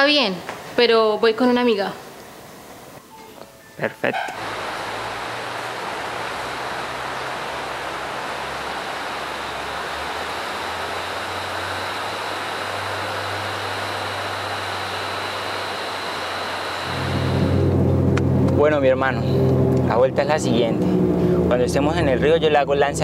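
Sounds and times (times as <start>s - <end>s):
river water rushing: 4.4s - 17.4s.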